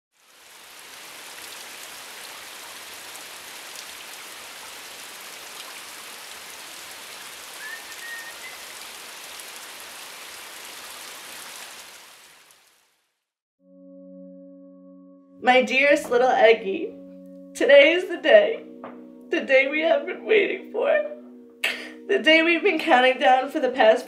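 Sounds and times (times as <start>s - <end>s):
steady rain: 0.1s - 13.1s.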